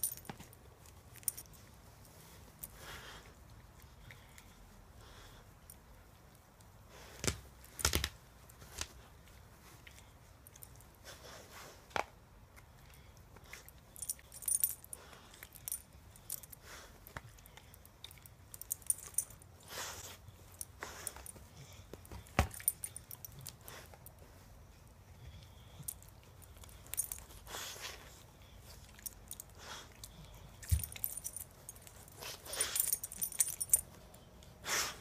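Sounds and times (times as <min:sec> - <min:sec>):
collar tag jingling: 0:00.0 - 0:03.2, 0:12.9 - 0:34.4.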